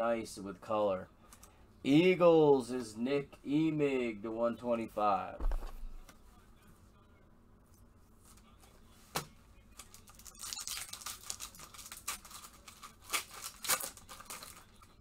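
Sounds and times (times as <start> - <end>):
wrapper tearing and crinkling: 9.8 - 14.9.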